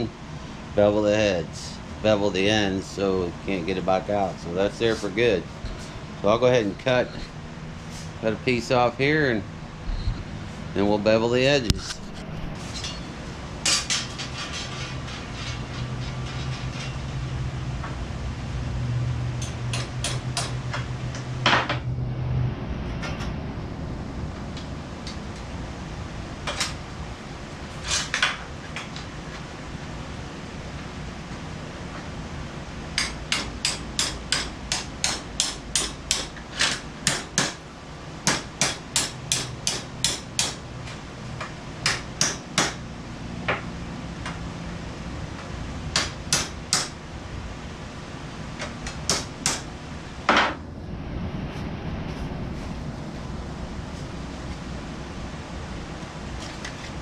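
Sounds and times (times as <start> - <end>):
steady low hum: 0.0 - 57.0
hammer striking metal: 19.4 - 21.8, 33.0 - 37.6, 38.2 - 40.6, 41.8 - 42.8, 45.9 - 47.0.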